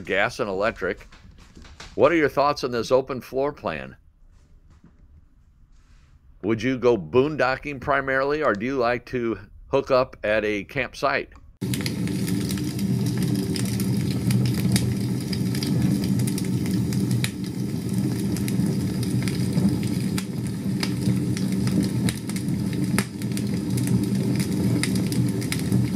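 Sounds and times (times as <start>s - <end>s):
campfire crackling: 11.6s - 25.9s.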